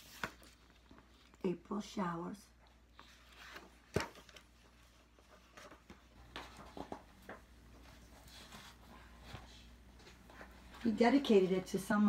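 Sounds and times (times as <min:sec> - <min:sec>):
paper pages rustling: 0:00.0 - 0:01.4, 0:02.9 - 0:10.9.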